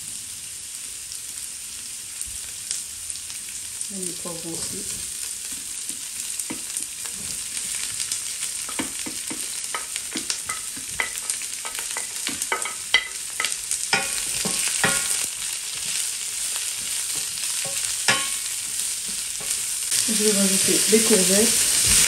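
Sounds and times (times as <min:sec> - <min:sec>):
vegetables sizzling in hot oil: 0:00.0 - 0:22.0
wooden spatula clattering in pan: 0:08.6 - 0:15.2, 0:17.1 - 0:19.6.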